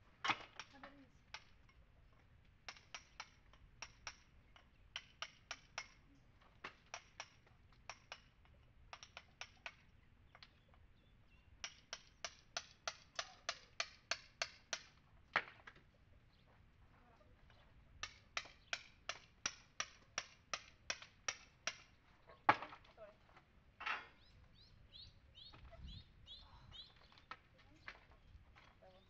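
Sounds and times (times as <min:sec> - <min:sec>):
hammer striking chisel: 0:02.7 - 0:04.3, 0:04.9 - 0:06.0, 0:06.7 - 0:08.3, 0:08.9 - 0:09.8, 0:11.6 - 0:15.5, 0:18.0 - 0:21.9.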